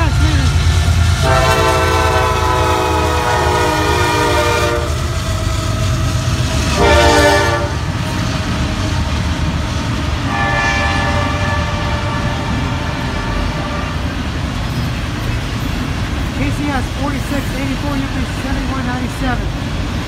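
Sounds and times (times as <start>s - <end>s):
passing train rumble: 0.0s - 20.0s
locomotive horn blasts: 1.2s - 5.1s, 6.7s - 7.9s, 10.3s - 14.1s.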